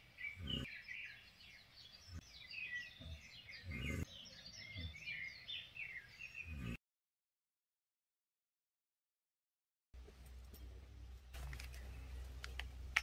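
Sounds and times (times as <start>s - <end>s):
birds chirping: 0.0s - 6.8s, 10.0s - 13.0s.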